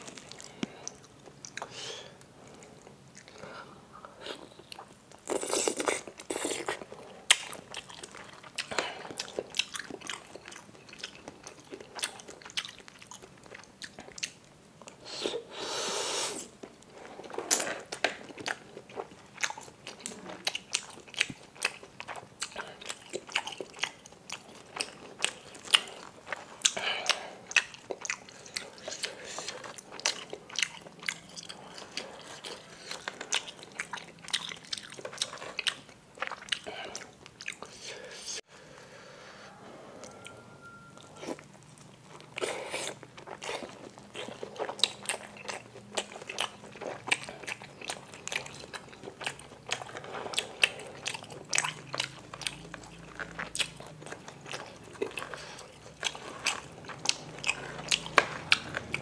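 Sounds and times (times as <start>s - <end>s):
biting and chewing: 16.6s - 37.7s, 41.0s - 59.0s.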